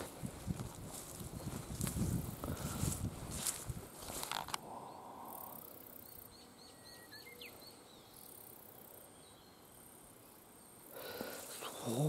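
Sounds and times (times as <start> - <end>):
footsteps rustling through grass: 0.0 - 4.6
small bird chirping: 5.9 - 12.0.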